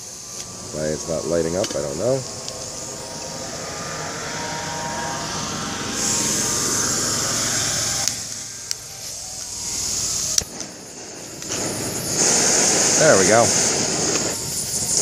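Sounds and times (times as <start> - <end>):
gas hissing from stove burner: 0.0 - 15.0
lighter sparking clicks: 8.0 - 8.8, 10.2 - 12.8.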